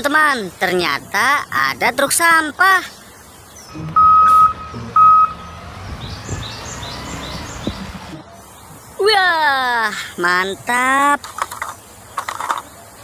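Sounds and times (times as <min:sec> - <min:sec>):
birds chirping: 0:00.0 - 0:13.0
truck reversing alarm beeping: 0:03.7 - 0:05.6.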